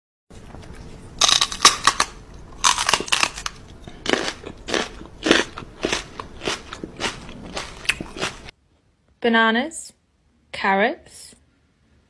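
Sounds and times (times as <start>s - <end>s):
person making nibbling noises: 1.2s - 8.5s.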